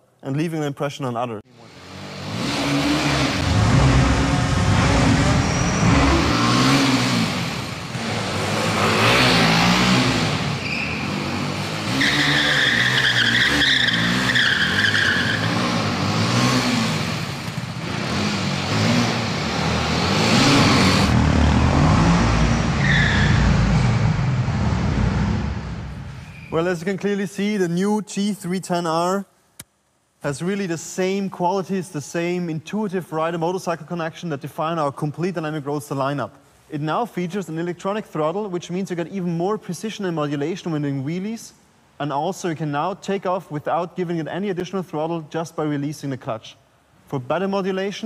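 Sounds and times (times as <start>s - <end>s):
motorcycle engine revving hard: 1.6s - 25.6s
tyre squealing: 2.6s - 7.0s, 8.0s - 16.1s, 22.4s - 23.6s.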